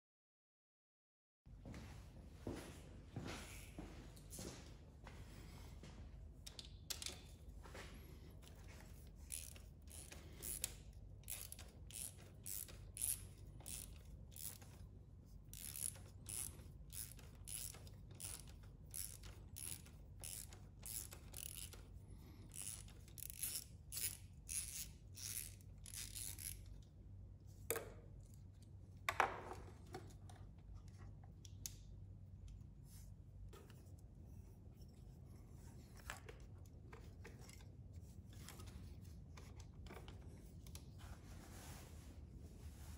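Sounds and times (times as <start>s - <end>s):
socket ratchet clicking: 9.2s - 14.8s, 15.4s - 27.0s.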